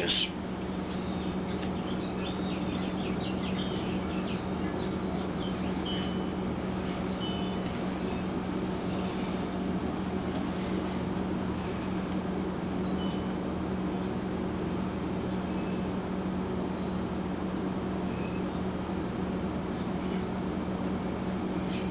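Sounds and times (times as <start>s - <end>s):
low room hum: 0.0s - 21.9s.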